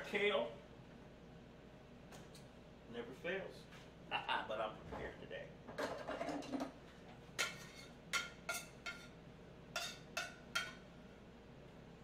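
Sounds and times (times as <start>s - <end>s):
metal tongs clinking on pan: 9.8s - 10.8s.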